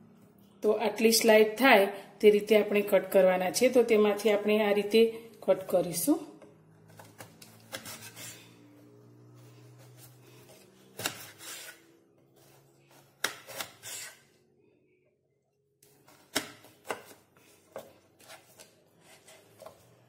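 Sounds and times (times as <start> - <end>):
knife slicing potato on board: 7.0 - 8.4, 9.6 - 11.8, 12.4 - 14.3, 16.0 - 19.8.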